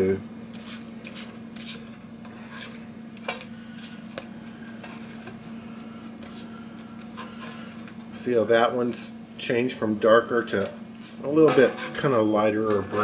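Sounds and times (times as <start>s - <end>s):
steady low hum: 0.0s - 13.0s
chilies scraping in dry skillet: 0.5s - 2.8s, 11.0s - 13.0s.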